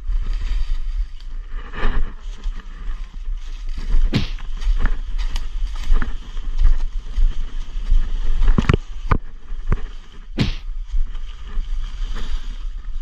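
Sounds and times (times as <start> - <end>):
footsteps crunching through dry leaves: 0.0 - 13.0
low wind: 0.0 - 13.0
sharp snaps or knocks: 4.1 - 4.4, 10.4 - 10.6.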